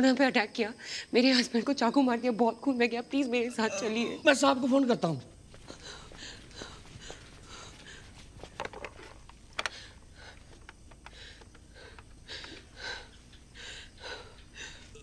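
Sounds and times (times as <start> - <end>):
woman breathing and sniffing: 5.6 - 8.6, 9.6 - 15.0.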